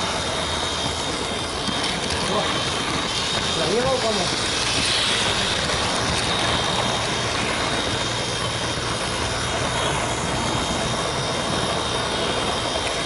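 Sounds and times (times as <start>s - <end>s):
model train whirring with whine: 0.0s - 13.0s.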